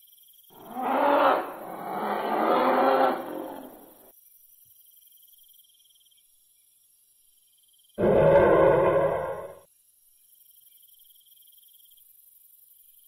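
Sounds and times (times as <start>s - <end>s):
faint insect chirping: 0.0s - 13.0s
dinosaur growling roar: 0.6s - 3.8s, 8.0s - 9.6s.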